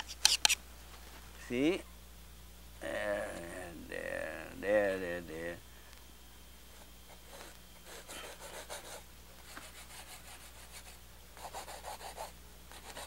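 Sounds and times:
paint tool scraping canvas: 0.0s - 0.6s
low electrical hum: 0.0s - 13.0s.

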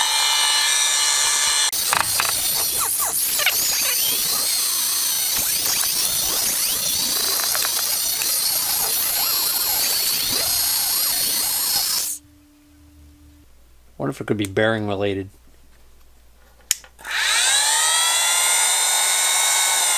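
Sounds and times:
drill press motor squealing: 1.7s - 12.2s.

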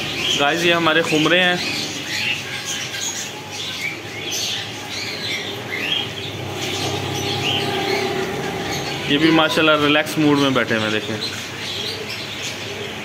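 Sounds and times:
cage birds chirping: 0.0s - 13.0s
low steady hum: 4.7s - 10.2s.

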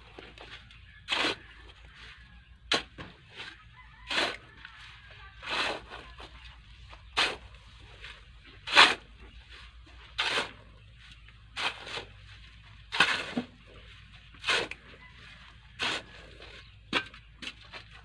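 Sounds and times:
shovel scraping into sand: 7.0s - 10.8s, 11.5s - 15.0s.

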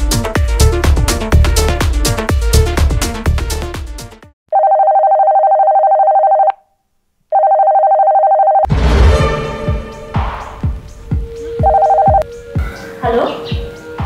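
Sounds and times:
warbling telephone ring: 4.6s - 6.5s, 7.3s - 8.7s, 11.6s - 12.2s.

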